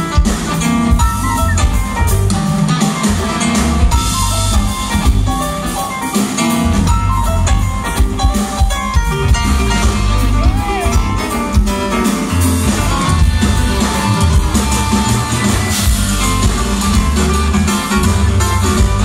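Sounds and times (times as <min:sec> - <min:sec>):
bass guitar: 0:00.0 - 0:19.0
drum kit: 0:00.0 - 0:19.0
electric guitar: 0:00.0 - 0:19.0
keyboards: 0:00.0 - 0:19.0.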